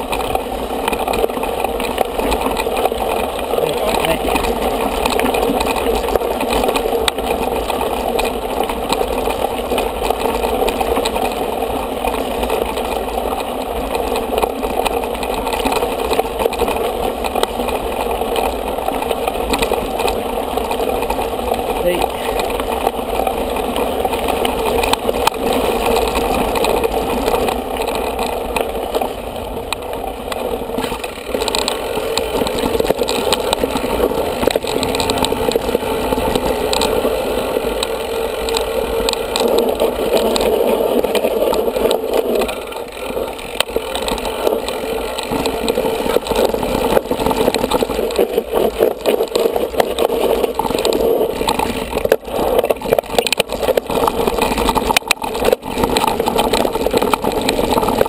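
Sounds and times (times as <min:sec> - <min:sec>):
bike tyres and frame rumbling: 0:00.0 - 0:58.0
rattling clicks over bumps: 0:00.0 - 0:58.0.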